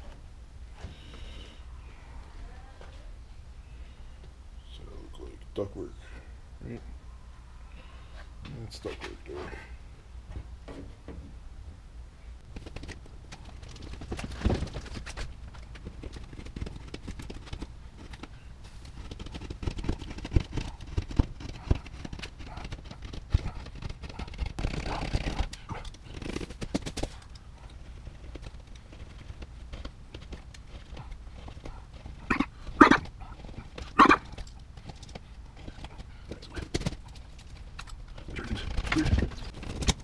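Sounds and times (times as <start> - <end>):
rustling and scraping: 12.4 - 40.0.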